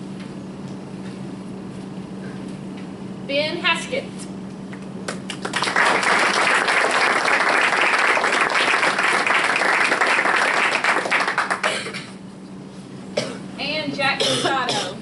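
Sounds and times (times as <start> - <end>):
audience applause: 5.3 - 11.7.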